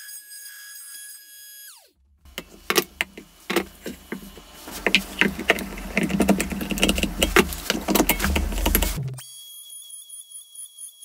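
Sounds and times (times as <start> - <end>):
steady low hum: 2.2 - 9.2
wooden knocks: 2.3 - 9.2.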